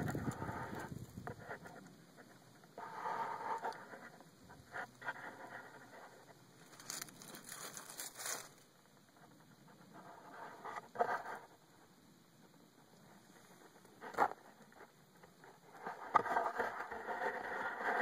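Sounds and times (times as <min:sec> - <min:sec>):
phone scraping against soil: 0:00.0 - 0:08.7, 0:09.9 - 0:11.5.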